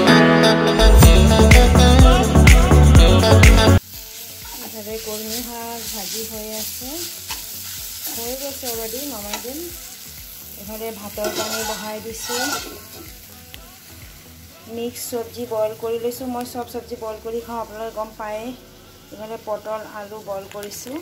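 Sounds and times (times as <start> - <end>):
background music: 0.0 - 21.0
steady frying sizzle: 3.0 - 21.0
spatula scraping greens in a pan: 4.4 - 9.6, 11.2 - 13.1.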